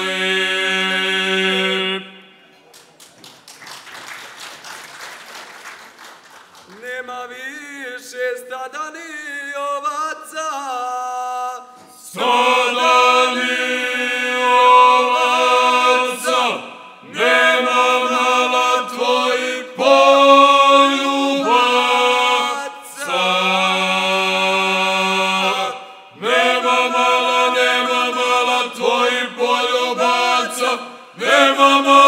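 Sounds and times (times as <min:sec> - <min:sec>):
male group singing unaccompanied: 0:00.0 - 0:02.1, 0:11.4 - 0:32.0.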